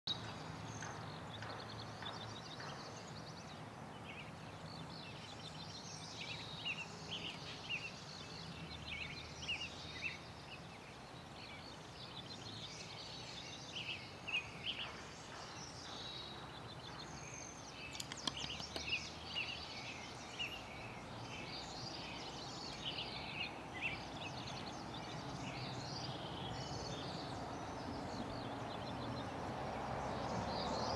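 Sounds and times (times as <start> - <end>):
birds chirping and singing: 0.1 - 30.9
sharp clicks: 17.9 - 19.0.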